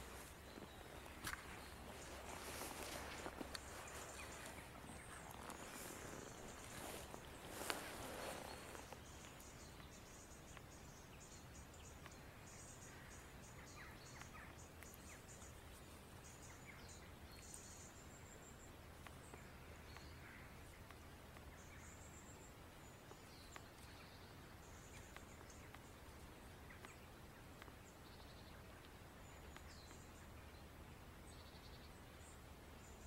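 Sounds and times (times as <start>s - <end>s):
small birds chirping: 0.0s - 33.0s
faint clicks: 23.0s - 30.3s.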